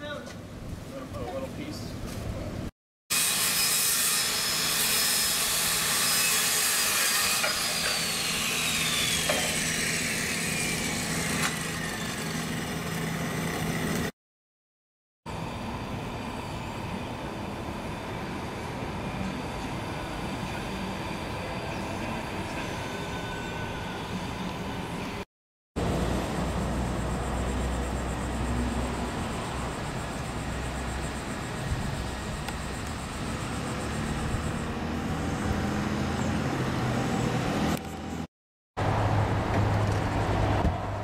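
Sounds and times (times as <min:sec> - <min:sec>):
table saw whine spinning down: 0:03.2 - 0:14.1, 0:25.8 - 0:37.7.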